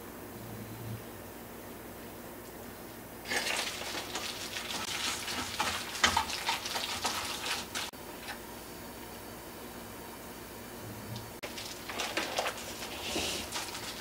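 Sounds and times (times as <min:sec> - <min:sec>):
hands mixing chicken in bowl: 0:03.3 - 0:08.4, 0:11.4 - 0:14.0.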